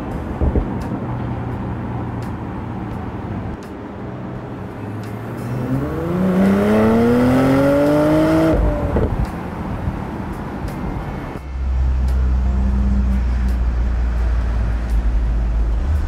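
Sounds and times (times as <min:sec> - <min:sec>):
car engine accelerating: 0:04.3 - 0:16.0.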